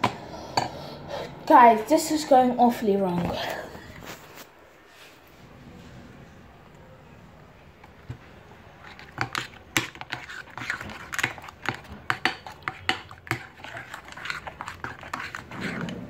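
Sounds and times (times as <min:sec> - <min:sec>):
spoon scraping mixing bowl: 0:08.7 - 0:16.0.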